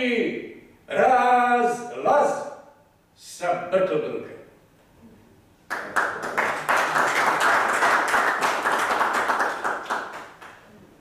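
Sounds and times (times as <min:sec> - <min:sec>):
audience applauding: 0:05.7 - 0:10.6.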